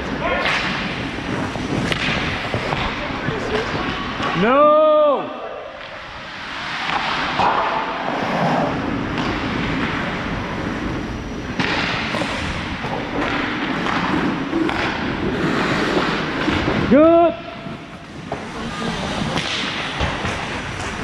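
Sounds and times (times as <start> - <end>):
sharp knocks of sticks or puck: 0.4 - 0.8, 1.8 - 2.9, 11.6 - 15.1, 19.4 - 20.9
ice skates scraping on ice: 0.7 - 4.3, 6.0 - 10.8, 13.2 - 16.9, 17.6 - 21.0
rushing air noise: 5.8 - 21.0.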